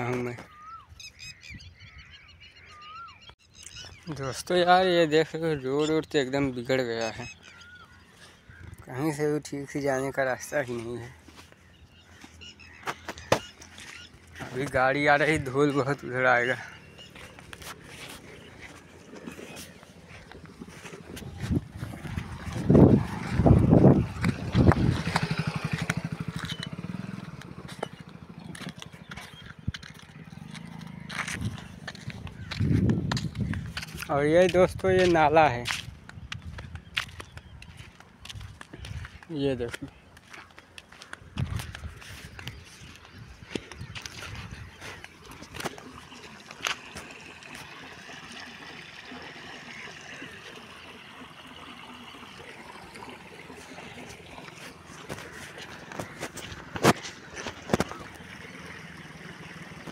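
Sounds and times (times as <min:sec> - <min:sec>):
motorcycle passing by: 0:20.0 - 0:32.9, 0:51.2 - 0:59.9
water flowing down drain channel: 0:44.4 - 0:59.9.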